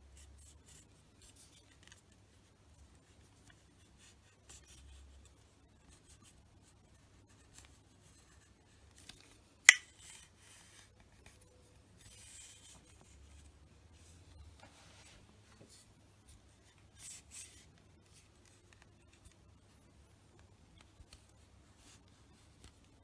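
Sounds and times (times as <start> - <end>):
handling noises of racket frame: 7.4 - 19.4.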